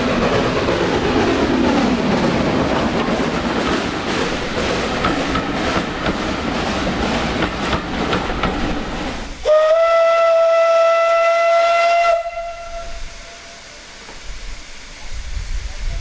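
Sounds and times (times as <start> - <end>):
train coaches rolling on rails: 0.0 - 16.0
steam locomotive whistle: 9.4 - 13.9.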